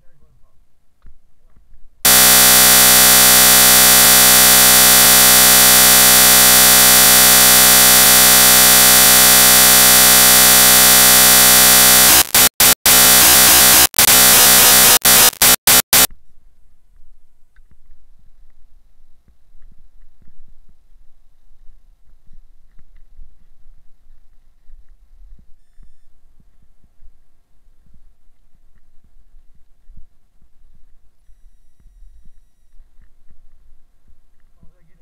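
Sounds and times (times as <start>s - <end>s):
digital buzz: 2.1s - 16.1s.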